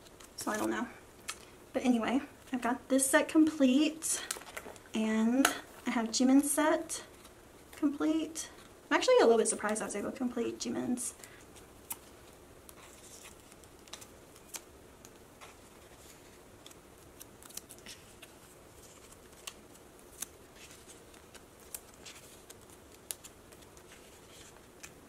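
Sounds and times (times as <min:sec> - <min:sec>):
card rustling against plastic: 0:04.2 - 0:04.9, 0:11.2 - 0:25.0
light clicks of cards: 0:19.0 - 0:25.0.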